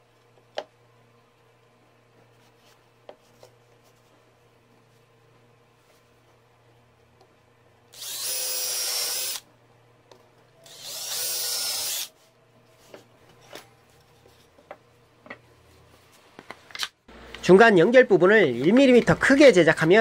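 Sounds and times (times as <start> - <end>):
electric power drill whine: 7.9 - 9.4, 10.6 - 12.1.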